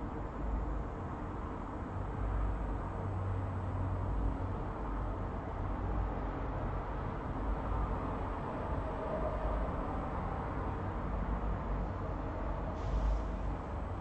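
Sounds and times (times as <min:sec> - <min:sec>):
hiss: 0:12.7 - 0:13.5.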